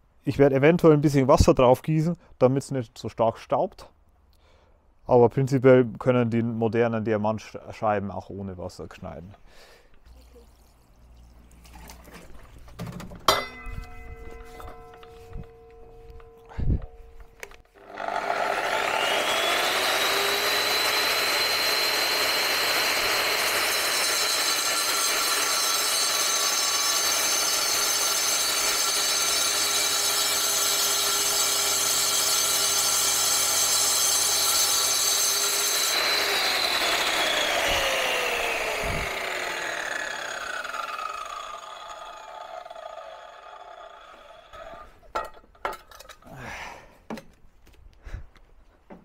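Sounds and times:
angle grinder whining: 0:13.8 - 0:45.1.

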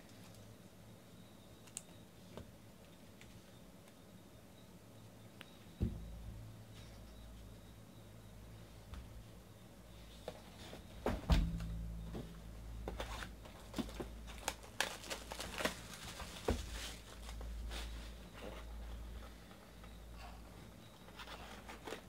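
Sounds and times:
low thump: 0:05.8 - 0:06.3, 0:11.1 - 0:13.0
plastic wrap crinkling: 0:12.9 - 0:18.0.

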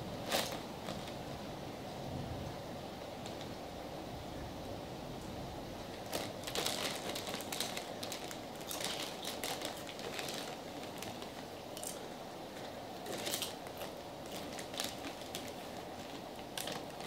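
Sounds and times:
low background noise: 0:00.0 - 0:17.0
chip bags crinkling: 0:00.2 - 0:01.2, 0:05.9 - 0:17.0.

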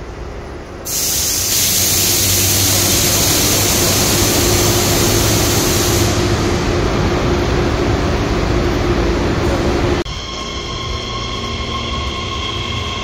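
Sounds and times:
train running rush: 0:00.0 - 0:13.0.

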